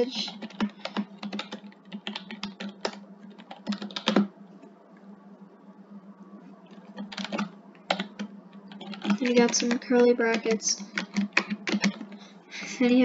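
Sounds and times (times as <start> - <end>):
keyboard typing: 0.0 - 4.3, 6.7 - 12.3.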